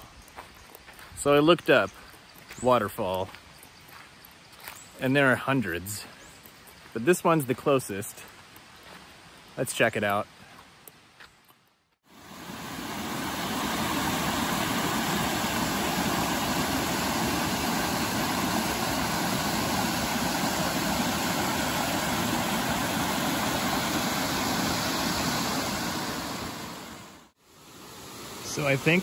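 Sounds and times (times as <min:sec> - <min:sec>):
water rushing down waterfall: 0:12.1 - 0:29.0.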